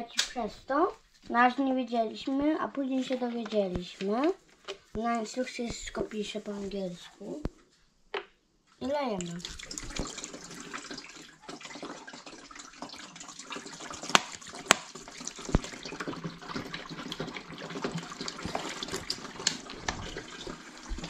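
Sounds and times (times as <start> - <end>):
water pouring into tank: 9.2 - 21.0.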